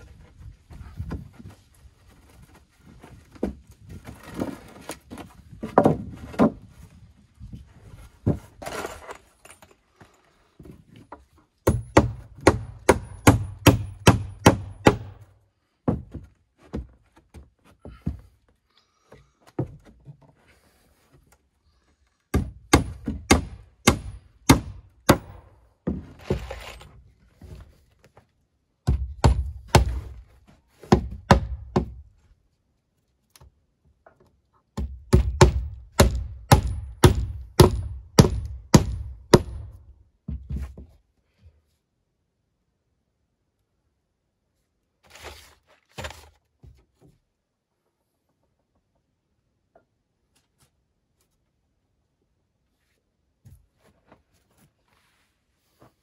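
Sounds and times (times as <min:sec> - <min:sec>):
sharp blows on wood: 0:22.3 - 0:25.5.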